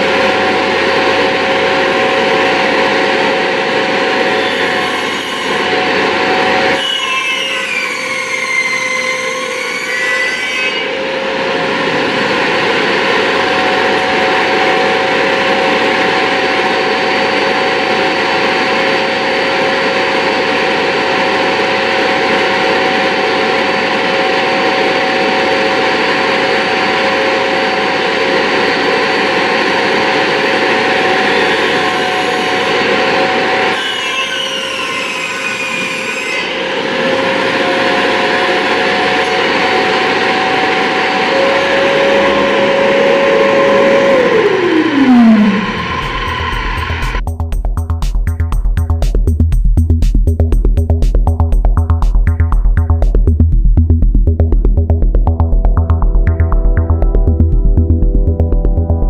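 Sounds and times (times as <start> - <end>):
circular saw cutting wood: 31.3 - 47.2.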